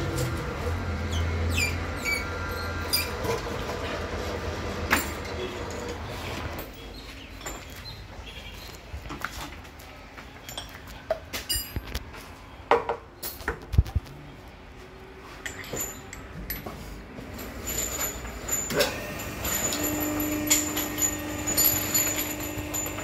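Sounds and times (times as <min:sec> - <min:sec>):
metallic clinks and knocks: 0:06.6 - 0:08.2, 0:10.4 - 0:12.2, 0:13.2 - 0:14.0, 0:15.4 - 0:23.0.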